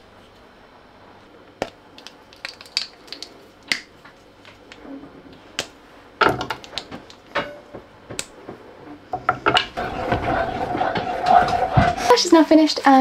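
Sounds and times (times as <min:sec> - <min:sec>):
chocolate bar snapping: 0:01.6 - 0:03.9.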